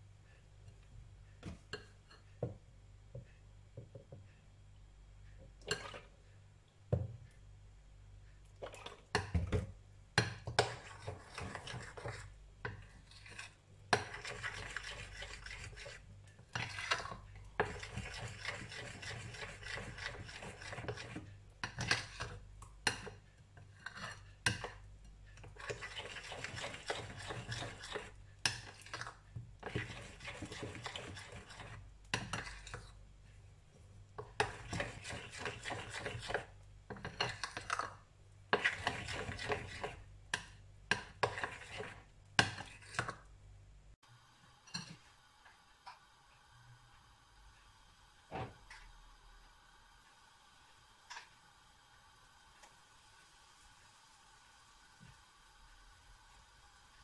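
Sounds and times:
utensil scraping glass bowl: 0:10.6 - 0:22.4, 0:23.7 - 0:24.8, 0:25.4 - 0:33.0, 0:34.2 - 0:40.1, 0:40.9 - 0:43.1.

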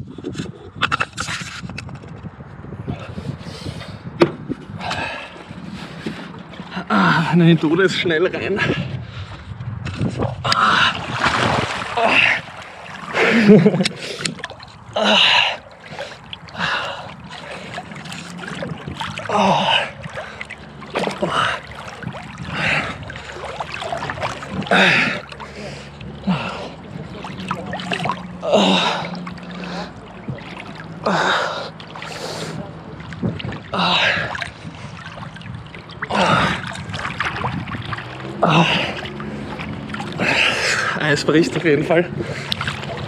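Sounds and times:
water sloshing and splashing: 0:00.0 - 0:43.0
swimmer breathing forcefully: 0:02.9 - 0:07.4, 0:10.5 - 0:14.4, 0:15.0 - 0:32.7, 0:36.1 - 0:37.0, 0:38.1 - 0:41.0, 0:42.1 - 0:43.0.

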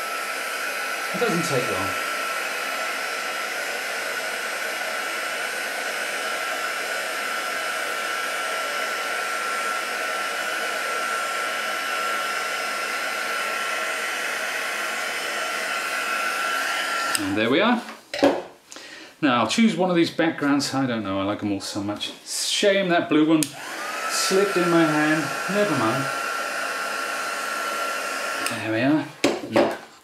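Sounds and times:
heat tool blowing air: 0:00.0 - 0:17.5, 0:23.4 - 0:29.0.

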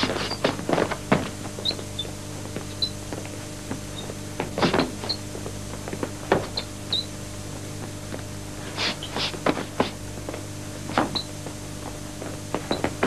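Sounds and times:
short high squeaks: 0:00.0 - 0:00.5, 0:02.7 - 0:03.0, 0:03.9 - 0:05.3, 0:06.4 - 0:07.2, 0:11.0 - 0:11.3, 0:12.6 - 0:13.0
steady low hum: 0:00.0 - 0:13.0.

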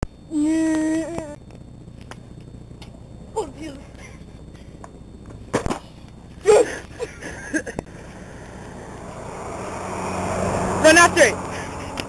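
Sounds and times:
car engine and tyres approaching: 0:07.9 - 0:12.0.

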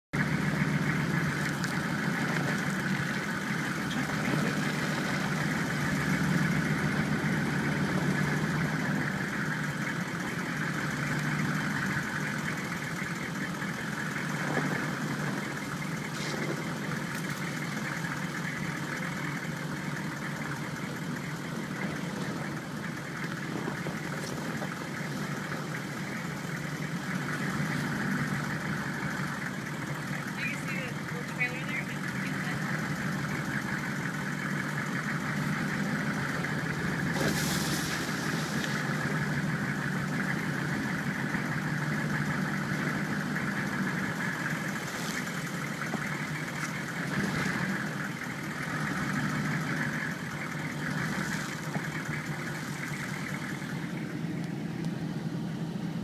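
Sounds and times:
vehicle engine running: 0:00.0 - 0:56.0.

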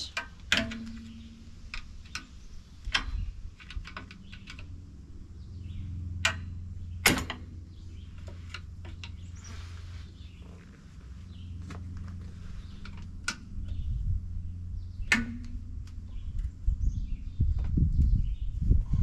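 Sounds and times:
low steady hum: 0:00.0 - 0:19.0
sharp metal knock: 0:15.0 - 0:15.7.

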